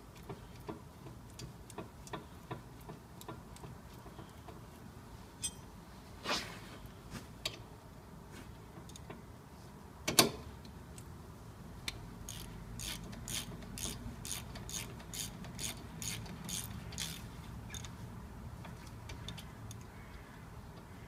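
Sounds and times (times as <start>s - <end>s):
ratchet clicking: 11.9s - 18.0s.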